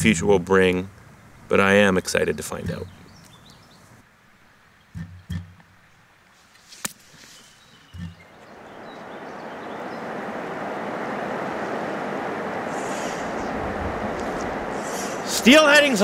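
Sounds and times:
river water rushing: 8.4s - 16.0s.

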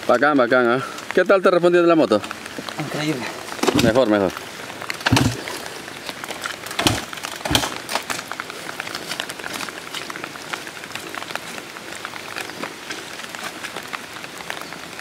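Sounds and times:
rain pattering: 0.0s - 15.0s
dull thumps: 5.0s - 5.6s, 6.7s - 7.9s.

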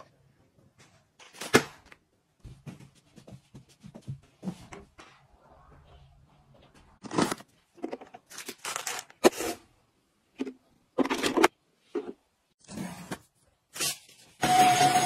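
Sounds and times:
rustling and scraping of items: 2.4s - 9.7s.

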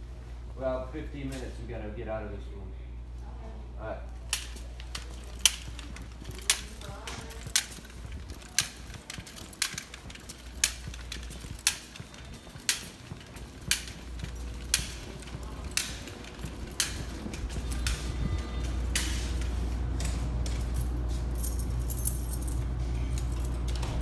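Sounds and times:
steady low hum: 0.0s - 24.0s
footsteps on concrete floor: 4.1s - 24.0s.

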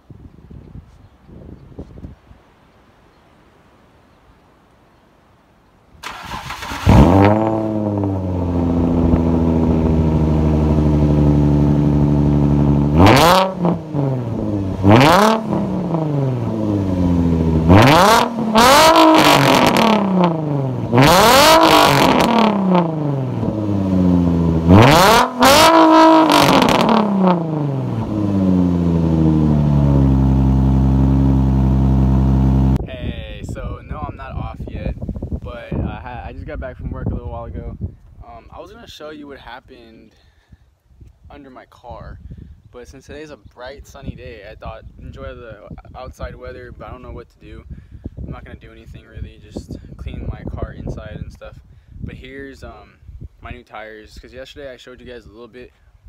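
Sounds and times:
car engine starting and idling: 6.0s - 32.8s
engine revving: 6.0s - 32.8s.

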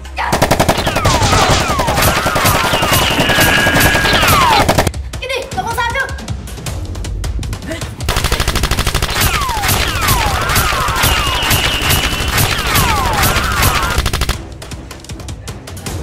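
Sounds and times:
automatic gunfire sound effects: 0.3s - 4.9s, 8.1s - 14.5s
swooping bullet whistles: 0.8s - 4.6s, 9.2s - 14.0s.

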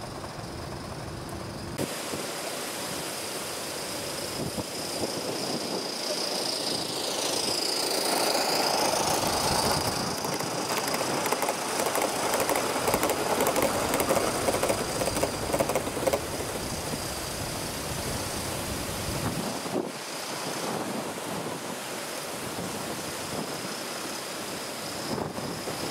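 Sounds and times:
model train wheels clicking: 4.6s - 18.8s.

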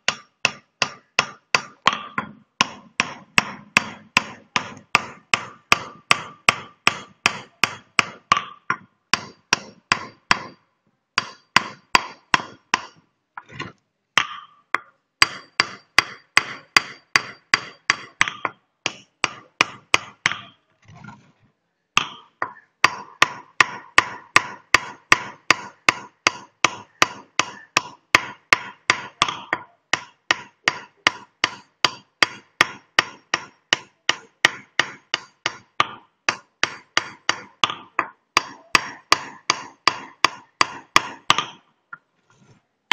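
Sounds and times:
hammer tapping metal chisel on stone: 13.6s - 20.6s.

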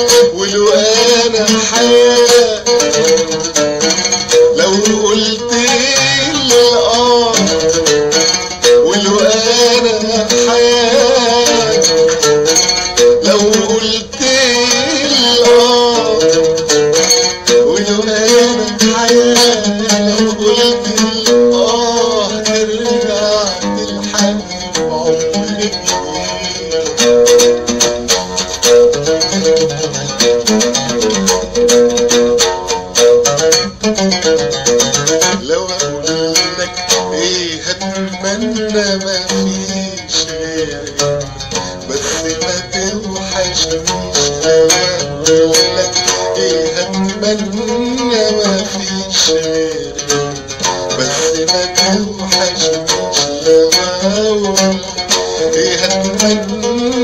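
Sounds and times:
plucked string melody: 0.0s - 57.0s.

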